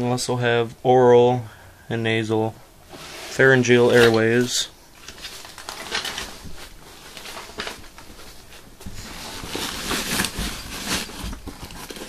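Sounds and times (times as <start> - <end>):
rummaging through nylon bag: 5.0 - 12.0.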